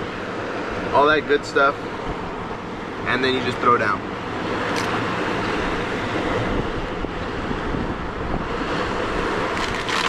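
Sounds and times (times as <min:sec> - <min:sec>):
surf on a beach: 0:00.0 - 0:10.0
wind noise on microphone: 0:04.7 - 0:10.0.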